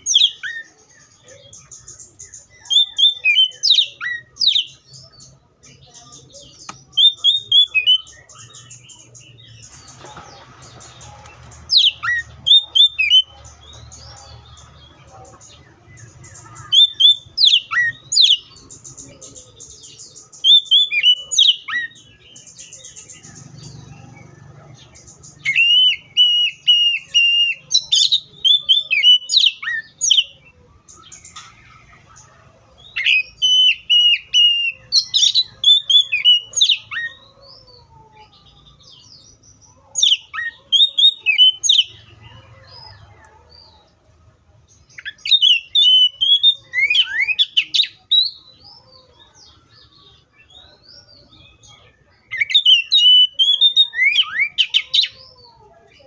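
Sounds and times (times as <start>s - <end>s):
bird singing whistles: 25.5s - 30.3s, 45.0s - 48.4s.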